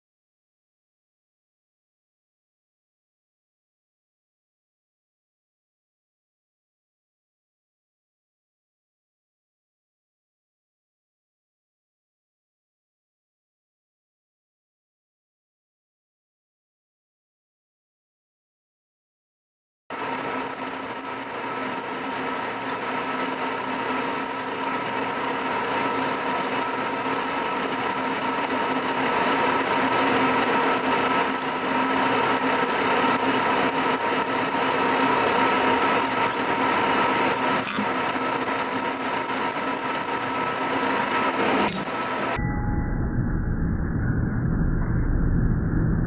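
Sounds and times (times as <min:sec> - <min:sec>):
drill bit grinding metal: 0:19.9 - 0:42.4
milling machine whine: 0:19.9 - 0:42.4.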